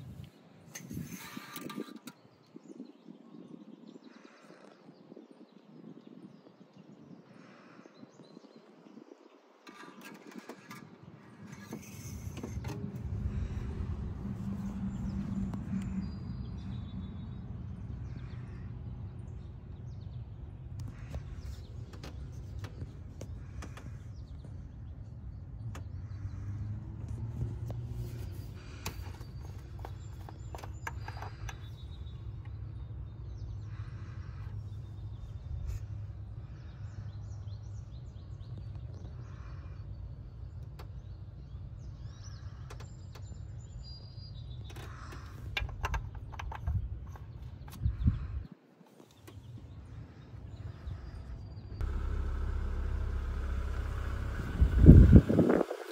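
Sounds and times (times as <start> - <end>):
car engine idling: 49.2 - 55.9.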